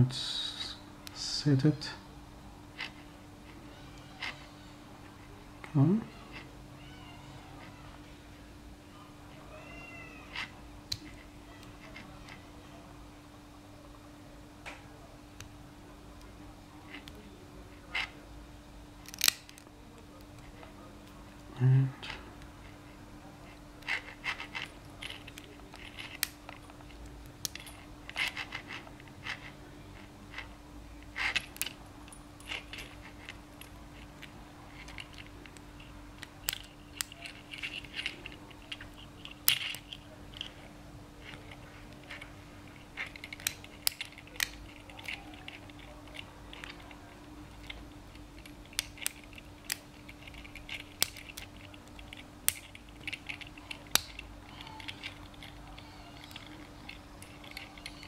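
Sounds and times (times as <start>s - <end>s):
lock pick clicking in padlock: 19.0s - 19.6s
lock pick scraping: 19.0s - 19.6s, 23.5s - 58.0s.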